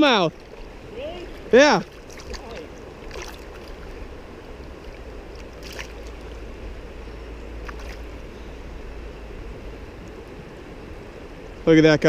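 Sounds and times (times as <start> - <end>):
shallow river water flowing: 0.0 - 12.0
brief water splashes: 5.6 - 6.0.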